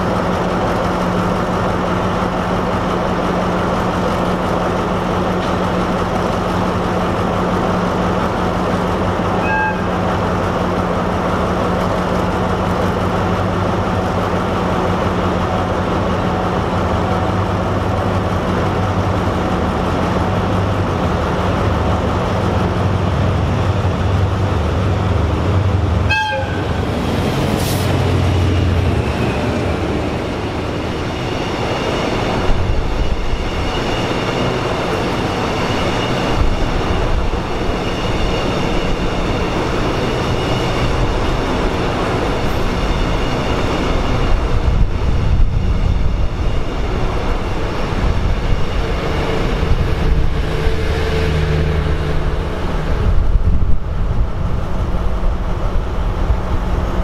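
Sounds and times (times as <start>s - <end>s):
arriving locomotive rumble: 0.0s - 57.0s
train horn toot: 9.3s - 10.1s, 26.0s - 26.8s.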